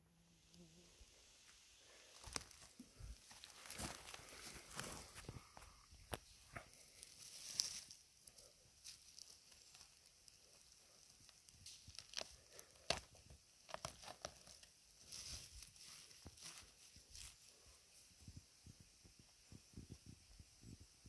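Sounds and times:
rustling of needles and twigs: 0.4s - 21.0s
soft tearing: 8.8s - 16.6s.

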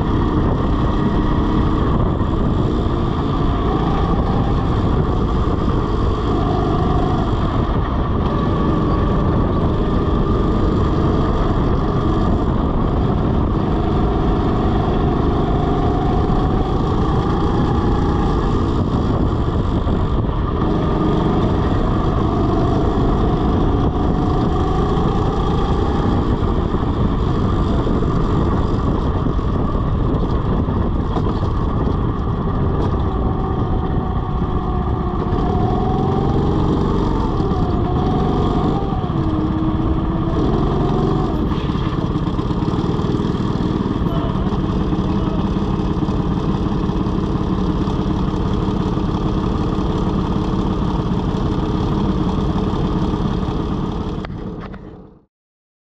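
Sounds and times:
go-kart motor running: 0.0s - 55.2s
wind rushing over microphone: 0.0s - 55.2s.

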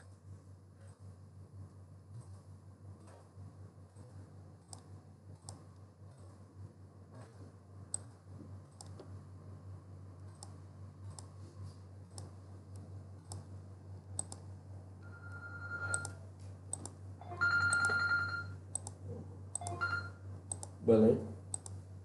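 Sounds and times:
low electrical hum: 0.0s - 22.0s
computer mouse clicking: 4.0s - 6.4s, 7.2s - 9.1s, 10.2s - 11.4s, 12.1s - 14.5s, 15.9s - 17.0s, 18.7s - 19.7s, 20.5s - 20.8s, 21.5s - 21.8s
electronic ringing tone: 15.0s - 16.2s, 17.2s - 18.6s, 19.6s - 20.2s.

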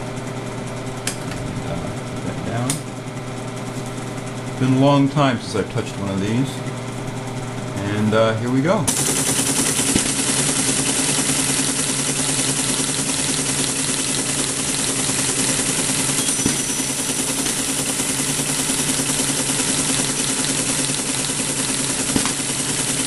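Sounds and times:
motor hum: 0.0s - 23.0s
teletype mechanical clatter: 8.9s - 23.0s.

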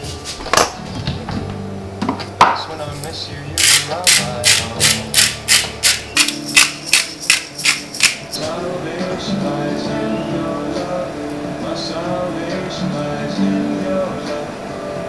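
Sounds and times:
spice grinder rasping: 3.6s - 8.4s.

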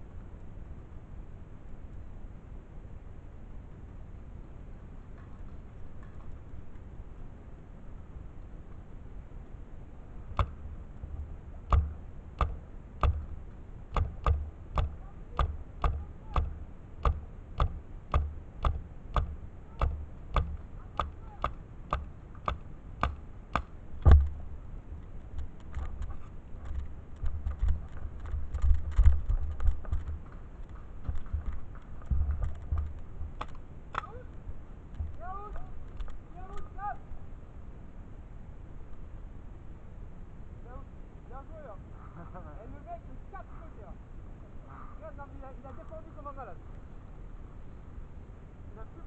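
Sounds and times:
paintball marker shots: 10.3s - 10.6s, 11.6s - 24.4s
knocks and rustling: 10.4s - 34.0s.

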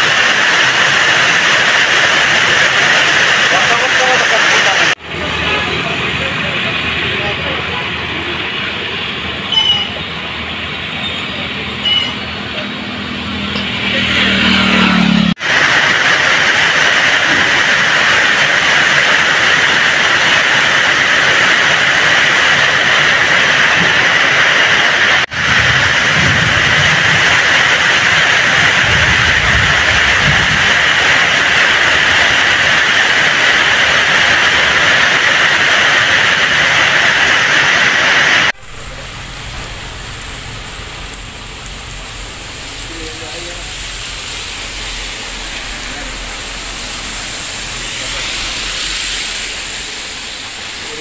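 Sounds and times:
heavy rain pouring: 0.0s - 9.4s, 11.4s - 51.0s.

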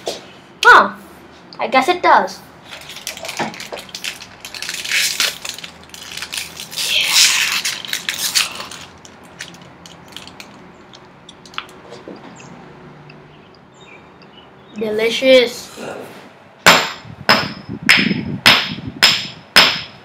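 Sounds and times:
food wrapper crinkling: 2.6s - 11.8s.

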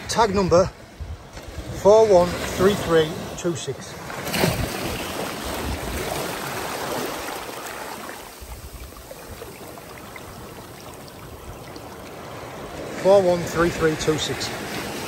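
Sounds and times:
water splashing in rock pool: 4.0s - 13.0s.

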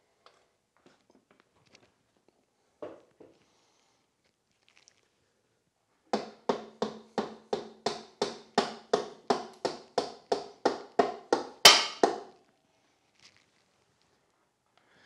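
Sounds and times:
sharp rhythmic knocking: 6.2s - 12.3s.

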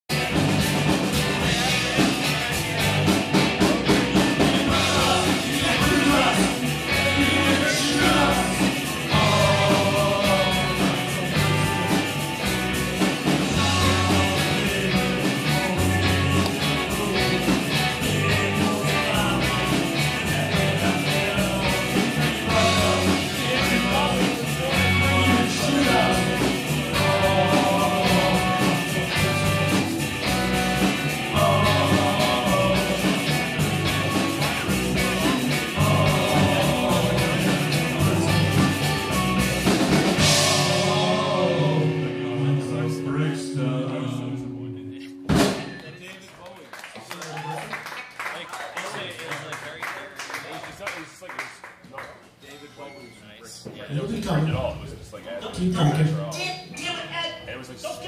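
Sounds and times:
live rock band playing: 0.0s - 45.8s
lead vocal singing: 3.4s - 45.6s.

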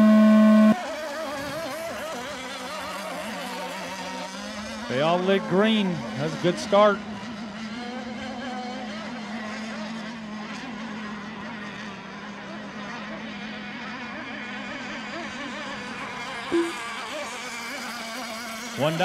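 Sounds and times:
short beep: 0.0s - 0.8s, 16.5s - 16.8s
rc boat engines buzzing: 0.0s - 19.0s.

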